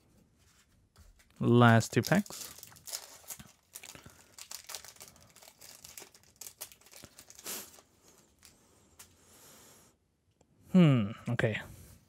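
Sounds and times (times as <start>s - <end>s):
foil wrapper crinkling and tearing: 1.4s - 8.6s.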